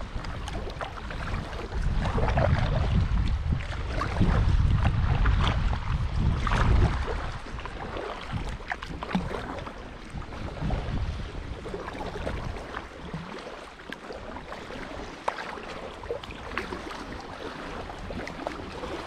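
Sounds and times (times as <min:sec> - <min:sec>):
water lapping against kayak hull: 0:00.0 - 0:19.0
wind rumbling on microphone: 0:00.0 - 0:19.0.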